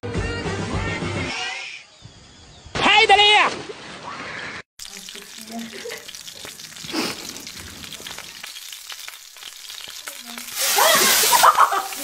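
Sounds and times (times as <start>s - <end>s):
food sizzling in frying pan: 4.8s - 12.0s.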